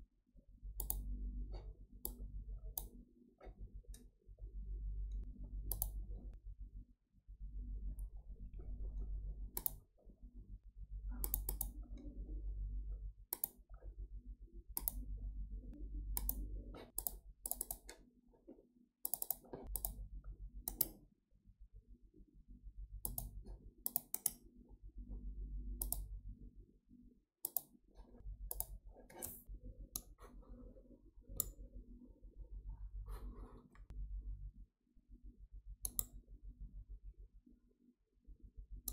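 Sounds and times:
low hum: 0:00.4 - 0:17.8, 0:24.8 - 0:26.7
computer mouse clicking: 0:00.8 - 0:01.2, 0:05.1 - 0:06.1, 0:09.5 - 0:09.9, 0:11.2 - 0:12.2, 0:13.3 - 0:13.8, 0:14.7 - 0:15.1, 0:16.1 - 0:18.1, 0:19.0 - 0:20.0, 0:20.6 - 0:21.0, 0:23.0 - 0:24.4, 0:25.8 - 0:26.1, 0:27.4 - 0:27.8, 0:28.5 - 0:30.2, 0:31.3 - 0:31.6, 0:35.8 - 0:36.2.

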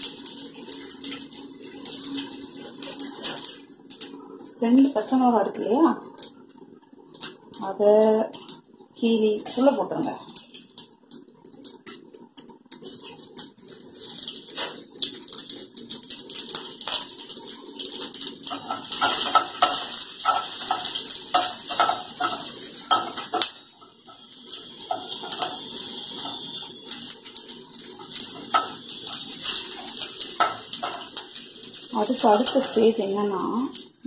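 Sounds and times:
oil sizzling in a pan: 0:00.0 - 0:34.0
metal spatula scraping a pan: 0:18.5 - 0:23.5.

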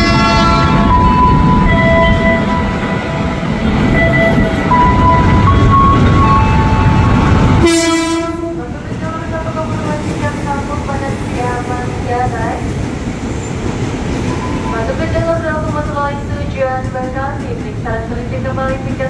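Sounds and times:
train horn blast: 0:00.0 - 0:01.3, 0:06.5 - 0:08.7
electric train pulling in: 0:00.0 - 0:19.0.

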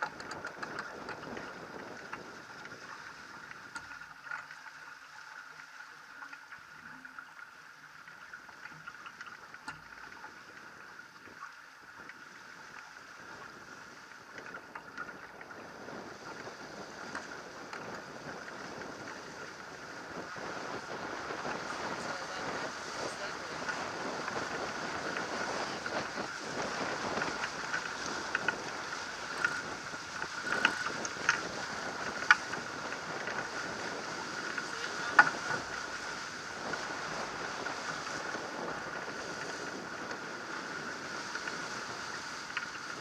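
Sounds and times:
water rushing along boat hull: 0:00.0 - 0:43.0
wind buffeting microphone: 0:14.7 - 0:43.0.

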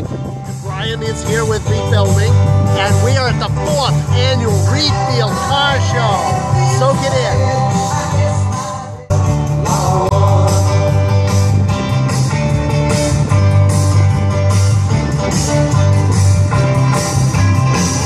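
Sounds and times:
rock music: 0:00.0 - 0:18.0.

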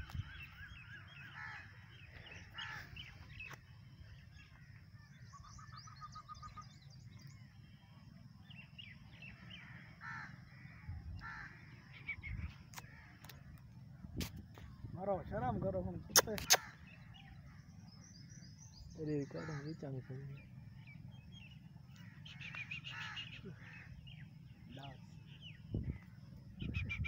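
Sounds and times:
bird calls and chirps: 0:00.0 - 0:27.0
low steady rumble: 0:00.0 - 0:27.0
sharp clicks: 0:16.1 - 0:16.8.

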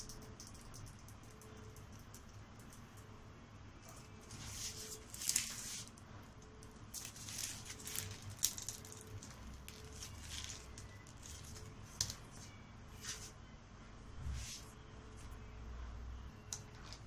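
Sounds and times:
rustling and scraping handling: 0:03.8 - 0:06.0, 0:07.0 - 0:13.4.

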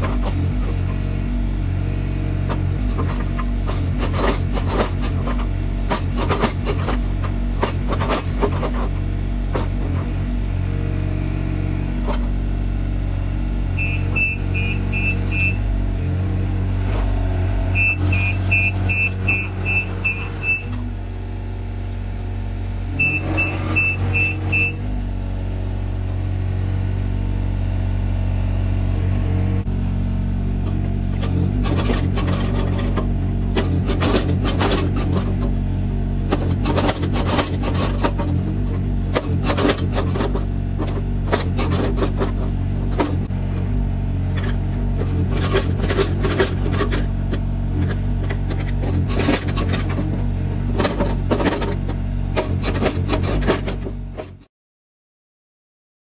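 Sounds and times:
excavator diesel engine running: 0:00.0 - 0:54.5
bucket scraping soil and stones: 0:02.4 - 0:10.1, 0:30.6 - 0:54.4
short high beeps: 0:13.8 - 0:15.6, 0:17.7 - 0:20.8, 0:23.0 - 0:24.8.

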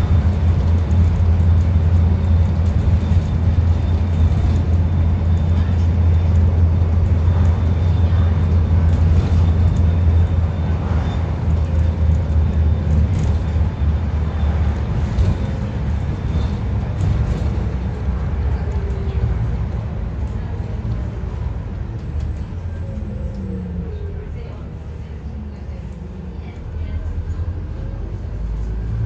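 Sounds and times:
bus diesel engine drone: 0:00.0 - 0:29.0
road noise: 0:00.0 - 0:29.0.

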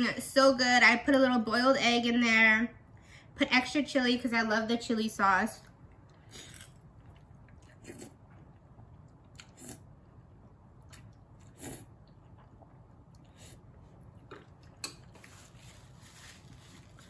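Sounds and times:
person slurping and chewing noodles: 0:06.0 - 0:10.0, 0:10.8 - 0:15.4.

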